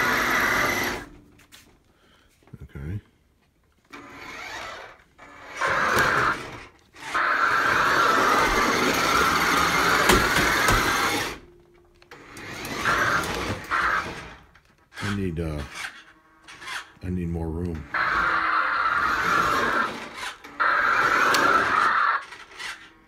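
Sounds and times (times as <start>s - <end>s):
toy car motor whirring: 0.0s - 1.2s, 3.9s - 11.4s, 12.1s - 17.0s, 17.8s - 23.0s.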